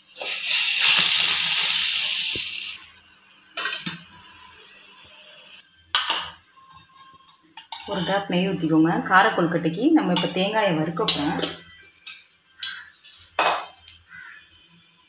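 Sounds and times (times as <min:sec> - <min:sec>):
steam hissing: 0:00.0 - 0:02.8.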